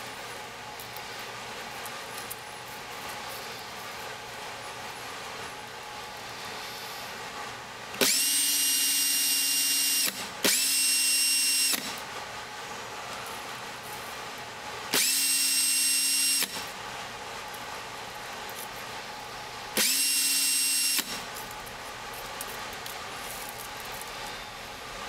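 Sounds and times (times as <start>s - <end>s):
drill motor whine: 8.0s - 12.0s, 14.9s - 16.7s, 19.8s - 21.3s.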